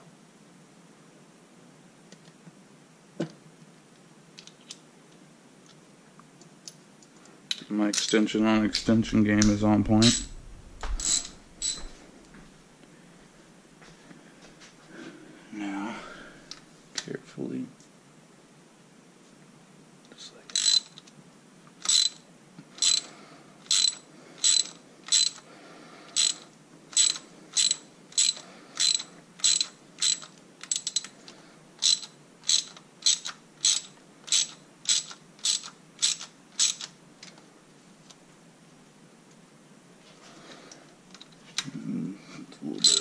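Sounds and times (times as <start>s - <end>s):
ratchet wrench clicking: 11.0s - 11.8s, 20.5s - 21.0s, 21.8s - 22.2s, 22.8s - 23.1s, 23.7s - 25.4s, 26.2s - 31.1s, 31.8s - 36.9s.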